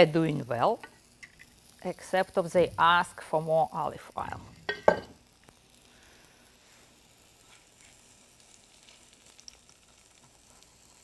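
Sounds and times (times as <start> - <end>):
food sizzling in a frying pan: 0.0 - 11.0.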